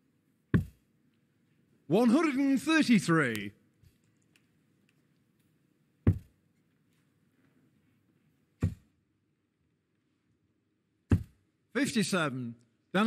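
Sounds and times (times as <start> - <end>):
darts thudding into dartboard: 11.1 - 11.4.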